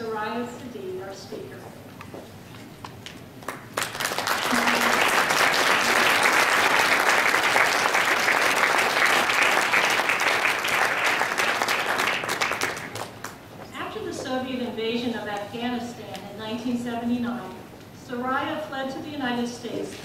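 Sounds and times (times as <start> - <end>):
audience applauding: 3.4 - 13.5.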